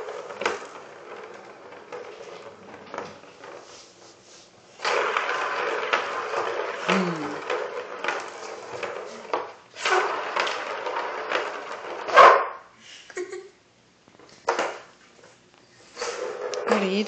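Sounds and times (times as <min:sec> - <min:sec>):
plastic ball rattling in track toy: 0:00.0 - 0:03.7, 0:04.8 - 0:12.2.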